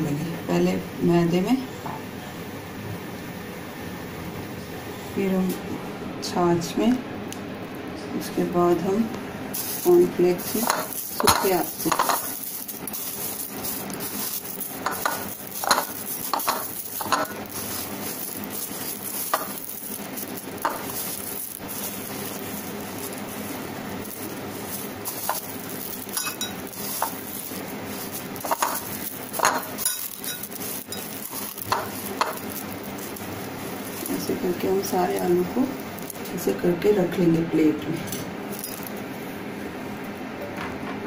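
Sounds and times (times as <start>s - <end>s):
cornflakes crunching and rustling: 9.5s - 36.4s.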